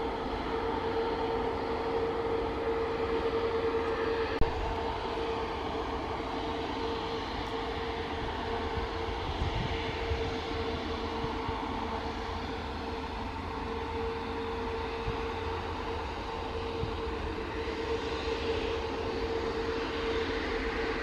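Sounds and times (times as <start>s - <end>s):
jet engines whining: 0.0s - 21.0s
wind rumble on microphone: 7.4s - 13.4s, 14.2s - 19.5s.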